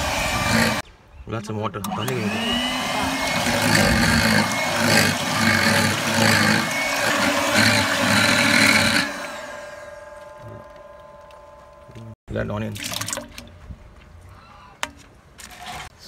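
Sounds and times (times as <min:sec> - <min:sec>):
electric hand mixer whisking: 0:00.0 - 0:00.8, 0:01.9 - 0:10.9.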